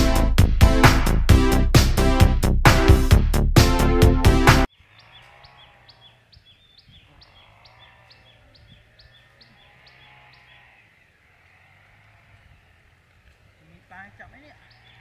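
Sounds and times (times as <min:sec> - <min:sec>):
soft bird chirping: 0:04.7 - 0:11.2, 0:14.6 - 0:15.0.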